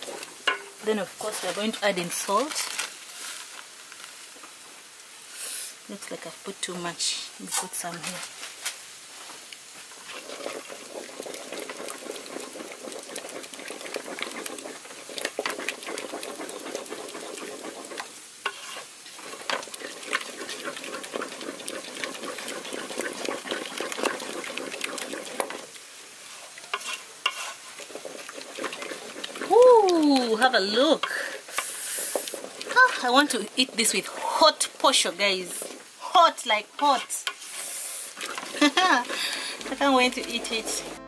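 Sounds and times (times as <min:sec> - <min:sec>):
wooden spoon scraping a saucepan: 0:10.0 - 0:35.9, 0:36.8 - 0:41.0.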